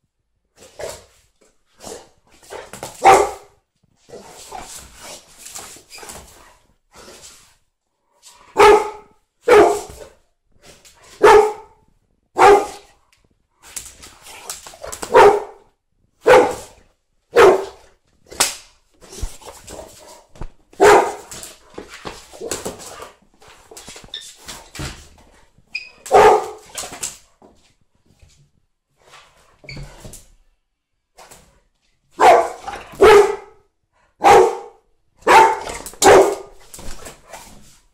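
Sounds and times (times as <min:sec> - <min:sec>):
dog barking: 0:03.0 - 0:03.6, 0:08.5 - 0:10.1, 0:11.1 - 0:11.8, 0:12.4 - 0:12.9, 0:15.1 - 0:17.8, 0:20.8 - 0:21.3, 0:26.1 - 0:26.7, 0:32.2 - 0:36.6.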